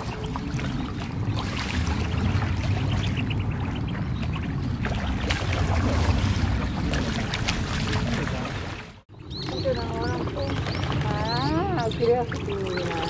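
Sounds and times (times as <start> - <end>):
wind rumble on microphone: 0.0 - 8.6
ducks splashing in water: 0.0 - 9.0, 9.6 - 13.0.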